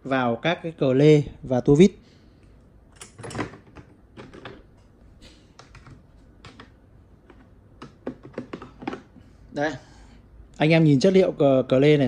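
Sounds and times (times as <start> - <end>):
metal tools clicking and rattling: 2.9 - 3.7.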